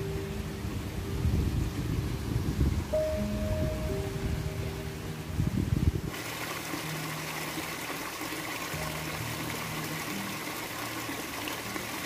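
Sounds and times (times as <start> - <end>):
low uneven rumbling: 0.0 - 11.9
stream splashing over rocks: 6.0 - 12.0.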